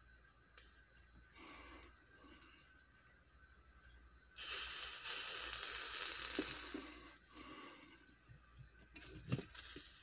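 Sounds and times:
flux sizzling under soldering iron: 4.3 - 10.0.

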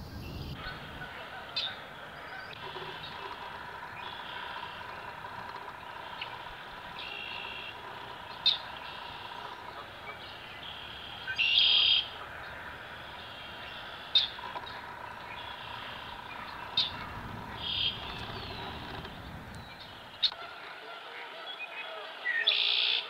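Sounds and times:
small birds buzzy calls: 0.0 - 23.0
sharp bird chirps: 5.8 - 20.4.

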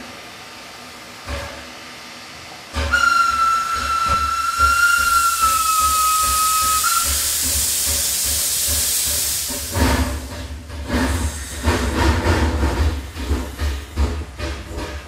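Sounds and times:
locomotive chuffing and rumbling: 0.0 - 15.0
loud hiss of steam: 2.8 - 15.0
steam locomotive whistle: 2.9 - 7.8.

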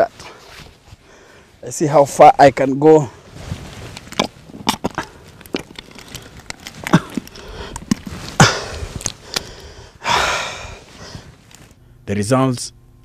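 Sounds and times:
hands digging in dry clay soil: 2.6 - 9.6.

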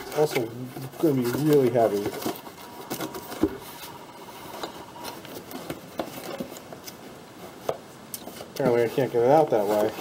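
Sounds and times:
cardboard rubbing and scraping: 0.0 - 7.7, 8.3 - 10.0.

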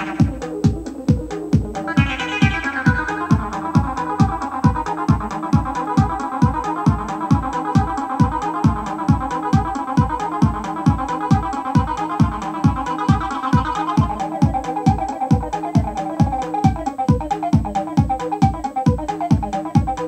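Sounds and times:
acid bass synthesizer pattern: 0.0 - 20.0
steady kick drum beat: 0.0 - 20.0.

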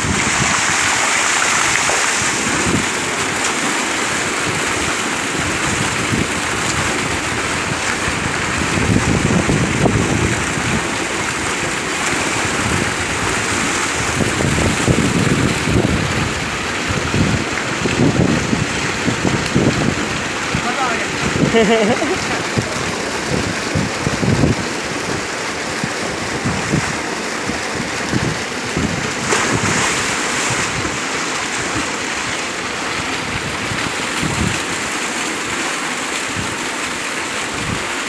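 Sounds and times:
water jet gushing into tank: 0.0 - 38.0
man sloshing in water: 29.1 - 32.3.

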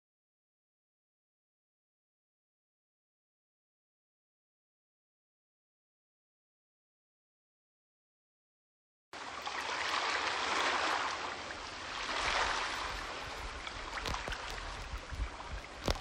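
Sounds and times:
faint clicks and knocks: 13.4 - 16.0.

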